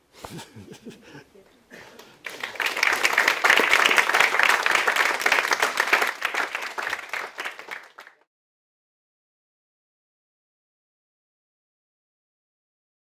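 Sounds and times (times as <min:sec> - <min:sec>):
audience applause: 0:02.0 - 0:08.3.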